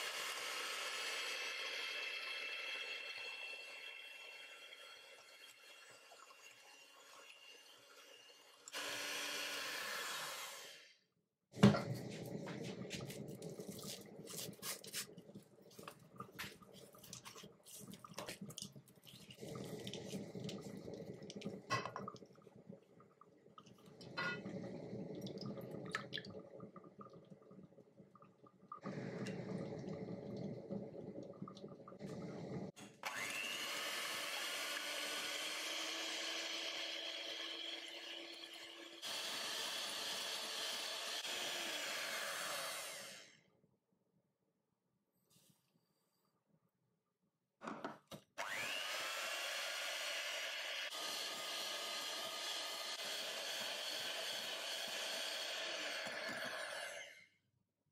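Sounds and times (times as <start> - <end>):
electric hand mixer whirring: 8.6 - 10.9, 32.1 - 43.4, 48.4 - 57.2.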